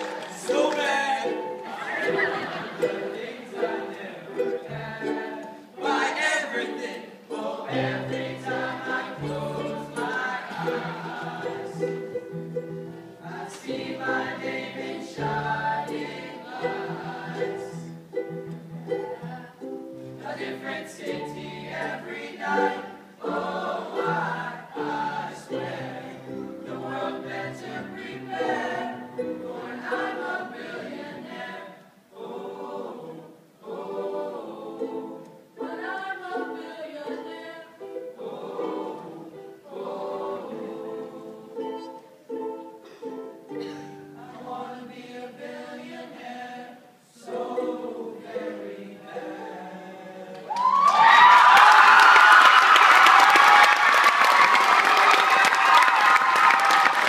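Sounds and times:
men singing in harmony: 0.5s - 12.1s, 19.2s - 31.5s, 44.2s - 50.5s.

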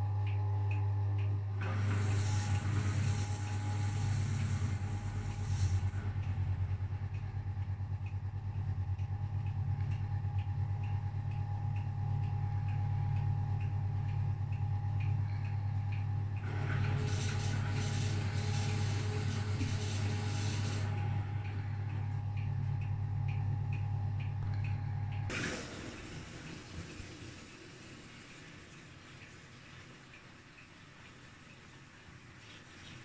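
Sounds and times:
washing machine motor humming: 0.0s - 33.0s
hiss: 16.5s - 21.1s, 25.3s - 28.6s.

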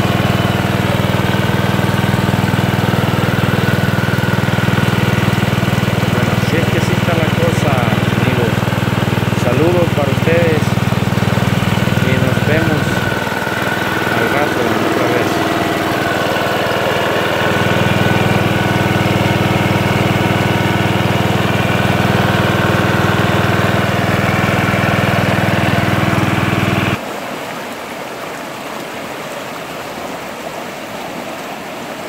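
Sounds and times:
small gasoline engine running: 0.0s - 27.0s
river rushing: 27.0s - 32.0s.

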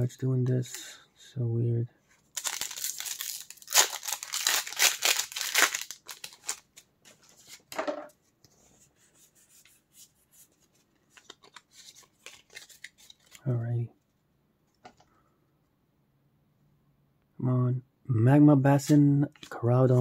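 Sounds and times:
cards rustling: 2.2s - 7.8s, 9.6s - 13.4s
foil wrapper crinkling and tearing: 2.3s - 6.8s.

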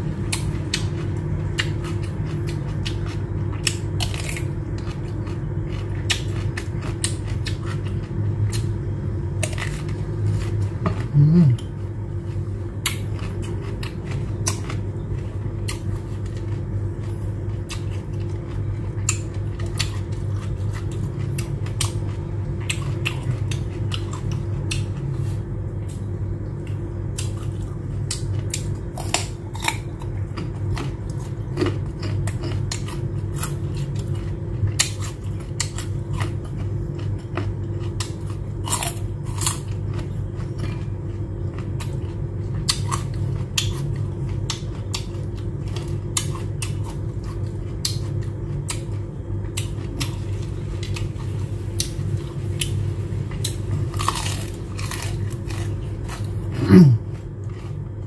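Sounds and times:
chewing fried shrimp: 0.0s - 58.0s
steady low hum: 0.0s - 58.0s
carrot crunching: 27.1s - 49.0s, 49.6s - 58.0s.

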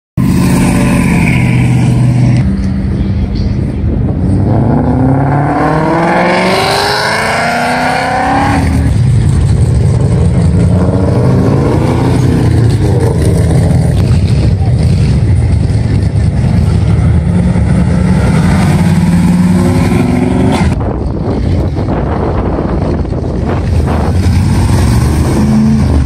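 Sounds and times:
car engine revving up: 4.2s - 20.8s, 23.7s - 26.0s.

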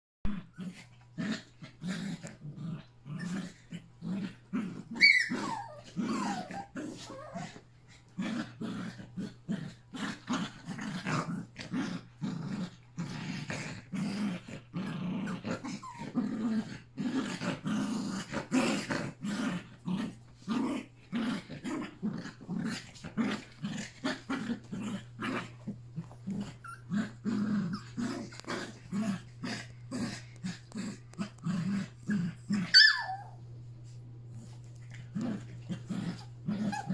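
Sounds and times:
dogs play-growling: 0.3s - 36.9s
dog yelping: 4.9s - 7.4s, 32.6s - 33.4s.

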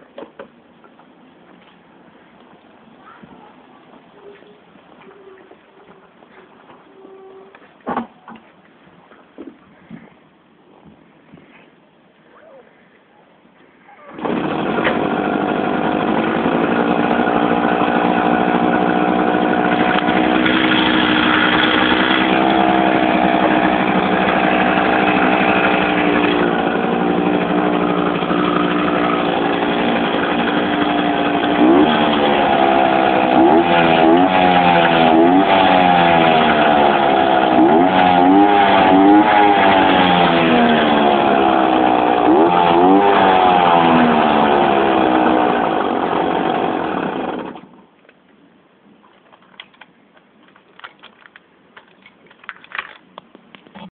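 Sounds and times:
moped engine idling and revving: 14.2s - 47.6s.

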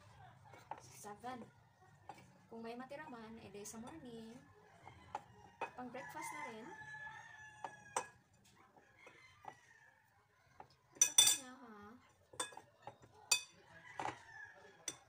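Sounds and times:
tongs and fork clinking on bowl: 11.0s - 11.5s, 12.3s - 14.2s.

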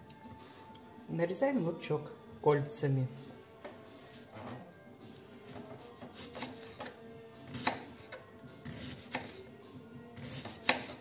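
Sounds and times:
soft background music: 0.0s - 11.0s
knife slicing onion: 5.4s - 9.4s, 10.2s - 11.0s.

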